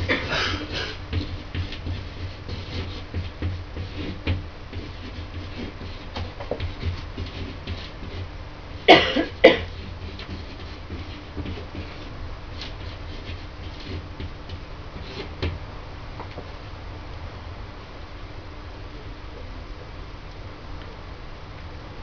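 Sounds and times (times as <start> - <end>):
person coughing: 0.0 - 1.0, 8.8 - 9.7
marker scratching on wall: 0.0 - 15.6.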